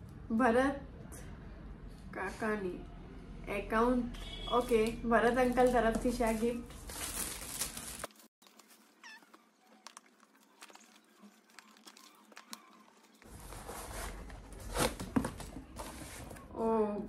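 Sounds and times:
foil wrapping crinkling: 0:05.4 - 0:15.0
paper rustling: 0:05.5 - 0:16.5.

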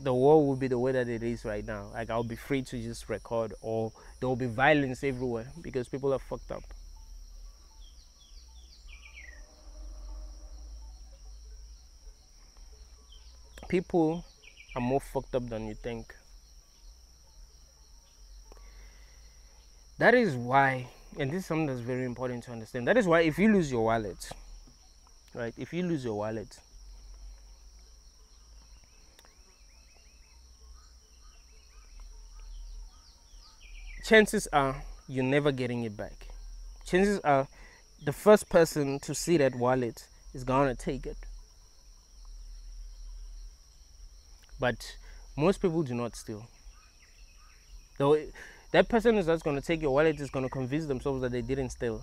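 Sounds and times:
insect chorus trilling: 0:00.0 - 0:52.0
bird chirps: 0:04.0 - 0:37.0, 0:46.3 - 0:52.0.

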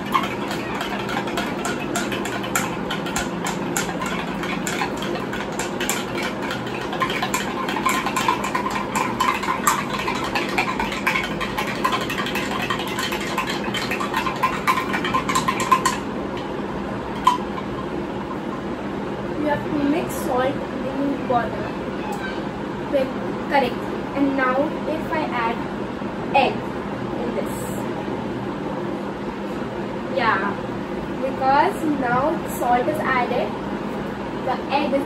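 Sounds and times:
spoon clinking in glass jug: 0:00.0 - 0:16.0
steady low hum: 0:00.0 - 0:35.0.

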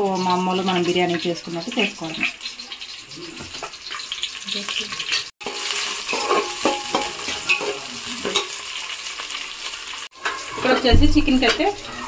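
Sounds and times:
onions sizzling in hot oil: 0:00.0 - 0:12.0
spoon scraping and stirring: 0:05.0 - 0:08.5.

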